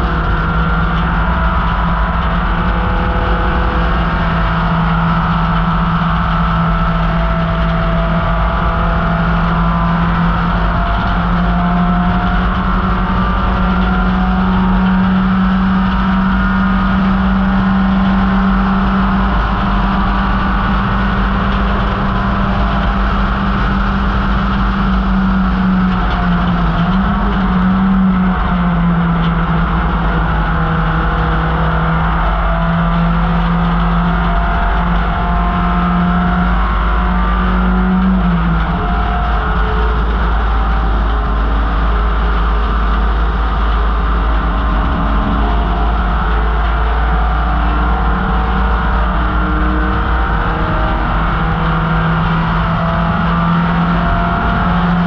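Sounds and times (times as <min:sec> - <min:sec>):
racing car engine running flat out: 0:00.0 - 0:55.0.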